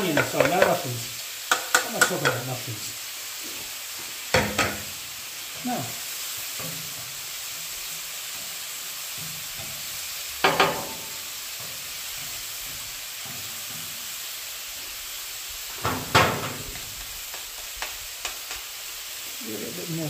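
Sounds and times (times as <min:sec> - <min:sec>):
food sizzling on griddle: 0:00.0 - 0:20.0
spatula knocking on griddle: 0:00.1 - 0:00.9, 0:01.5 - 0:02.5, 0:04.3 - 0:05.0, 0:09.1 - 0:14.0, 0:15.8 - 0:18.7.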